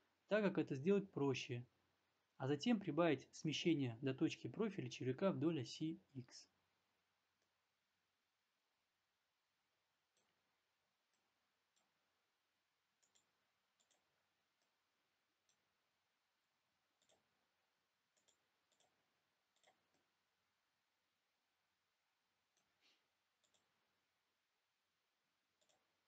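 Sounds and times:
computer mouse clicks: 13.0 - 14.8, 17.0 - 17.3, 18.1 - 20.1, 22.5 - 23.8, 25.6 - 26.0.

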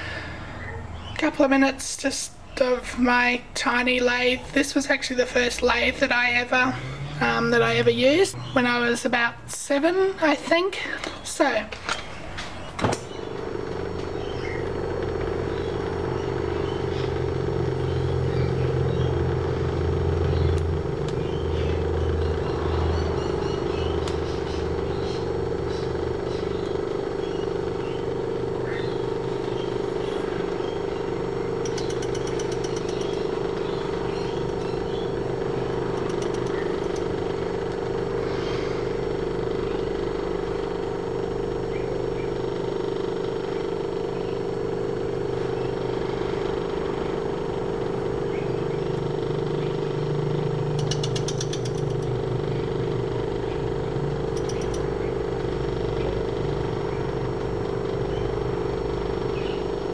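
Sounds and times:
high pulsing bursts: 3.0 - 10.6
lathe motor hum: 3.4 - 59.9.

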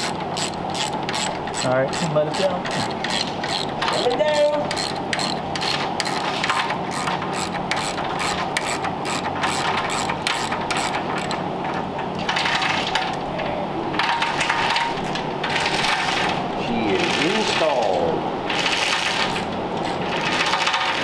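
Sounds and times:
ratchet mechanism clicking: 0.0 - 11.4.

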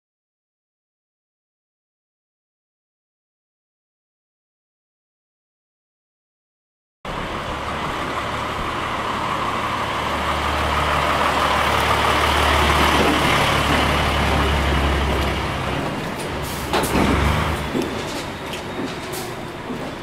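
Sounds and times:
diesel truck engine running: 7.1 - 20.0.

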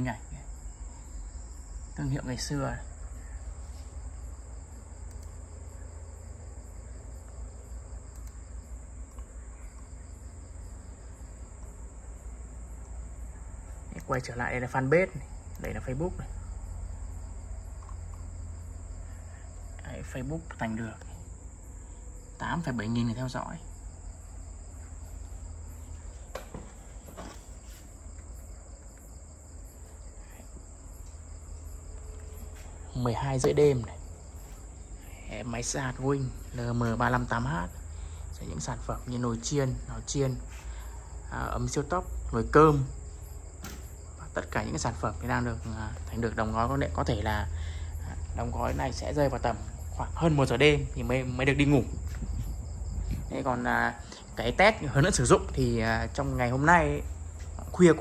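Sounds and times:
crickets chirring: 0.0 - 58.0
low hum: 0.0 - 58.0
low steady rumble: 0.0 - 58.0
faint clicks: 5.0 - 5.4, 8.1 - 9.9, 15.5 - 15.9, 17.8 - 18.2.

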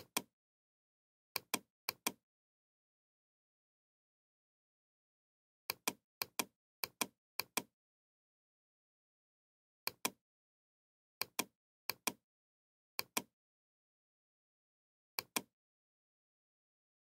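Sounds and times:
computer mouse button clicks: 15.2 - 15.5.

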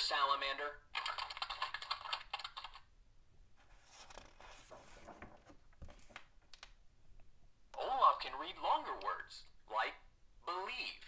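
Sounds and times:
book page turning: 3.6 - 6.3.

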